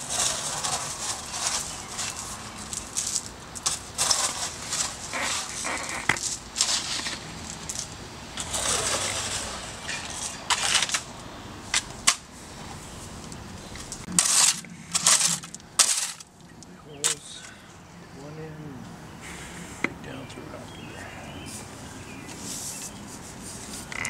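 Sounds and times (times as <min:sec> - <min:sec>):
shovel scraping soil and stones: 0:00.0 - 0:12.3, 0:14.0 - 0:16.3, 0:17.0 - 0:17.5.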